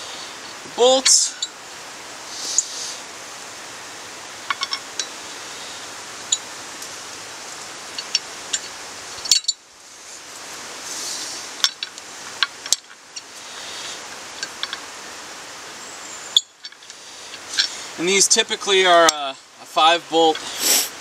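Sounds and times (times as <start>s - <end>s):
steady background hiss: 0.0s - 21.0s
metal bolts clicking: 4.5s - 5.1s.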